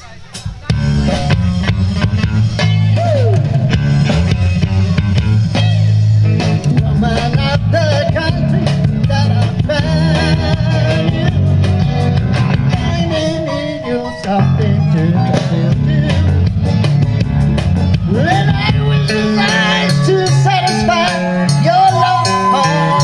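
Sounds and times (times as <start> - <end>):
rock band playing: 0.0 - 23.0
person singing: 6.6 - 16.8, 18.0 - 23.0.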